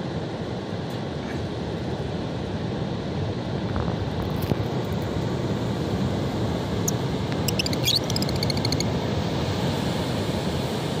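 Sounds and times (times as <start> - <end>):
wind: 0.0 - 11.0
bird chirping high: 6.9 - 8.9.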